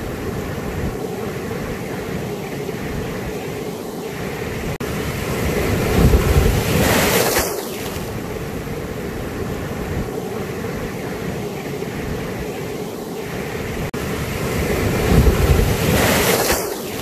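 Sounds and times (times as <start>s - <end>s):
ocean surf washing around rocks: 0.0s - 17.0s
large wave crashing: 4.1s - 12.1s, 13.3s - 17.0s.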